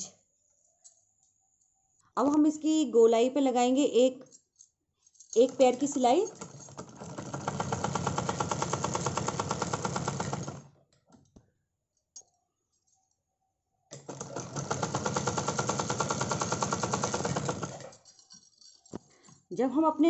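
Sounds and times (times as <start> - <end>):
sewing machine stitching: 5.3 - 11.3, 13.9 - 19.0.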